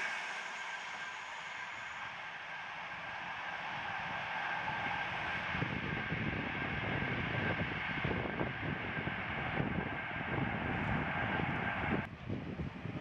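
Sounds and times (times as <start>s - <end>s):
distant electric train: 0.0s - 12.1s
wind buffeting microphone: 3.8s - 13.0s.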